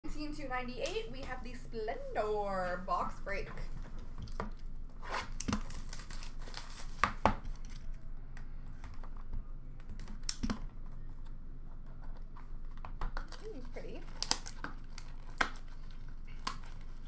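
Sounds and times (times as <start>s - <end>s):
cardboard ripping: 5.0s - 7.3s.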